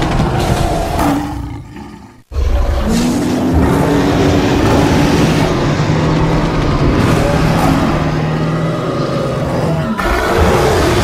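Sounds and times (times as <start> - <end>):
deep creature roar: 0.0 - 11.0.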